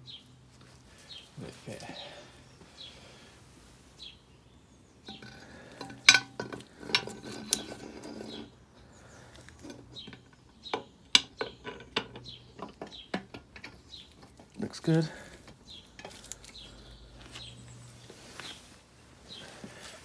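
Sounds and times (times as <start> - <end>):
metal scraping on metal: 5.1 - 8.6.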